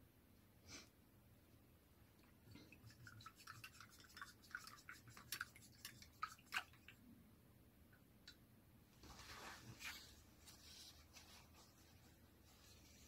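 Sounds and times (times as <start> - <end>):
paintbrush swishing in water: 2.5 - 6.8.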